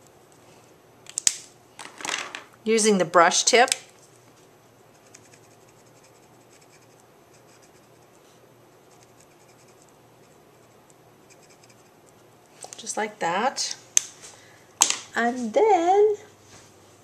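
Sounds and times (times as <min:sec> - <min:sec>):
marker scratching on cardstock: 0:04.9 - 0:08.1, 0:08.9 - 0:11.9.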